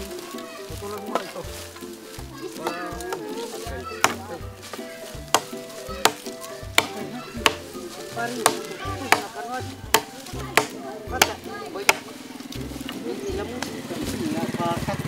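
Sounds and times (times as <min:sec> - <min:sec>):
blade chopping wood: 0:03.9 - 0:12.2.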